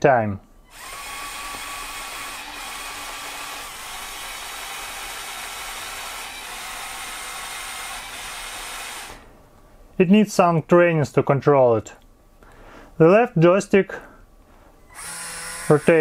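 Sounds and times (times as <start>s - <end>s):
small geared motors whirring: 0.7s - 9.2s, 14.9s - 16.0s.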